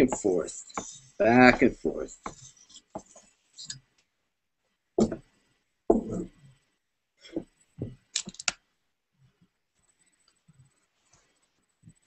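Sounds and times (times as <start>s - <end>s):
dull thumps and rubs: 5.0s - 5.3s, 5.9s - 6.3s.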